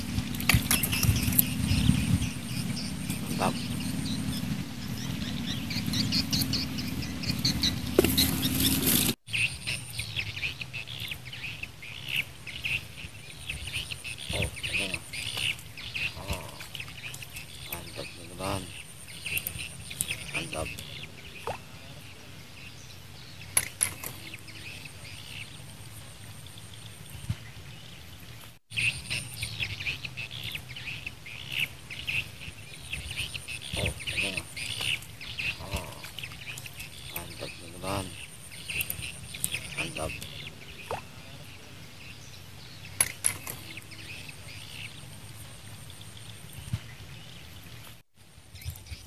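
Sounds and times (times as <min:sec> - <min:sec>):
steady low rumble: 0:00.0 - 0:08.9
small birds chirping: 0:00.0 - 0:49.0
steady background noise: 0:00.0 - 0:49.0.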